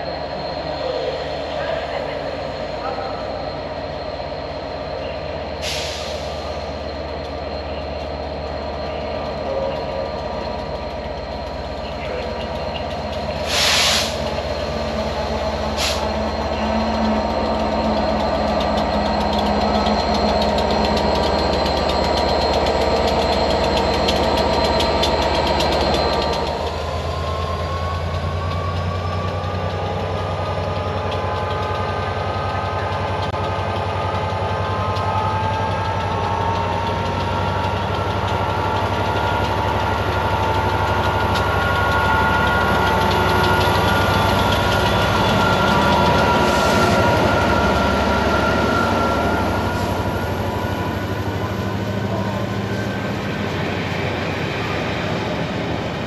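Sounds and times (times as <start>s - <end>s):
train running: 0.0s - 56.0s
air brake hisses: 5.6s - 6.6s, 13.4s - 14.4s, 15.8s - 16.2s.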